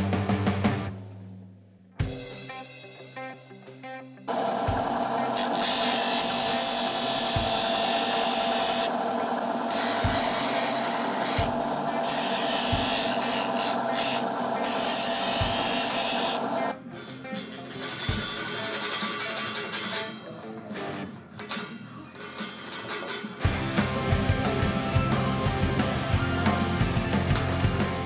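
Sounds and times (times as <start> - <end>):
disc sander grinding metal: 4.3 - 16.7.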